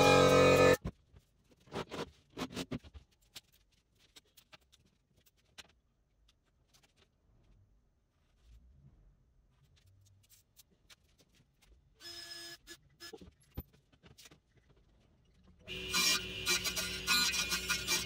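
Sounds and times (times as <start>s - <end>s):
loud steady drone: 0.0s - 0.8s.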